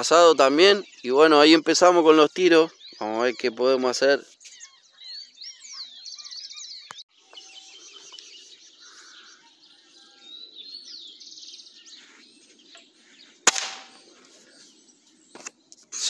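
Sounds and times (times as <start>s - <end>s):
small birds chirping: 0.0s - 16.0s
air rifle shot: 13.5s - 14.0s.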